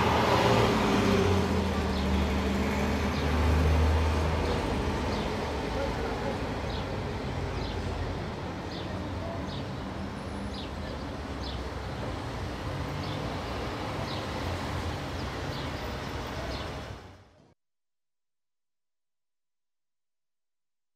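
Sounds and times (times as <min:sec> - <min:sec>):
rumble of traffic: 0:00.0 - 0:17.6.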